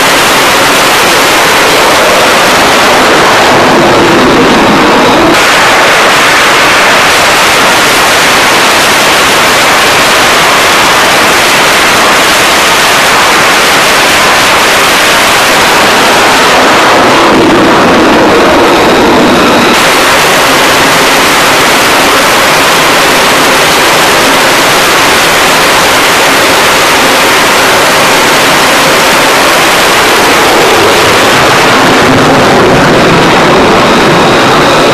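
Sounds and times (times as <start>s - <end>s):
jet engines roaring: 0.0s - 34.9s.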